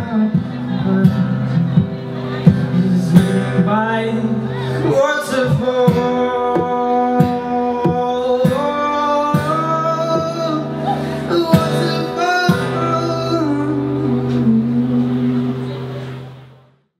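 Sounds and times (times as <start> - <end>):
lap slide guitar notes: 0.0 - 16.6.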